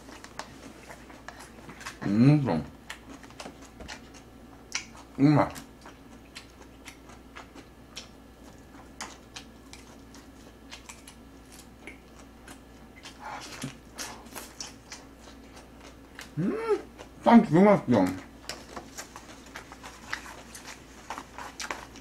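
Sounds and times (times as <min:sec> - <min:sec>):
person chewing food: 0:00.0 - 0:17.2, 0:18.1 - 0:22.0
person humming: 0:16.3 - 0:16.9.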